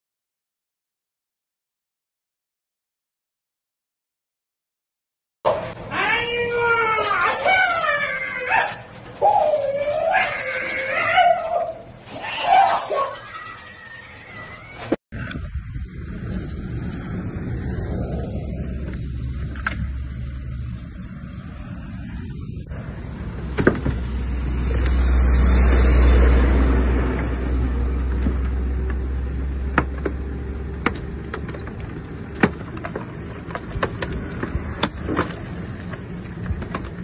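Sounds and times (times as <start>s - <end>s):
metal body knocking and creaking: 23.5s - 25.0s, 28.0s - 37.0s.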